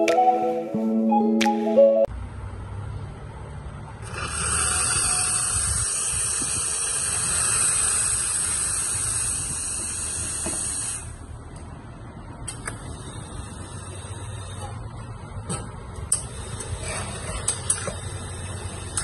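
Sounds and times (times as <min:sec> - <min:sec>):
espresso machine steam hissing: 0:04.0 - 0:11.3, 0:12.7 - 0:14.9, 0:16.2 - 0:19.0.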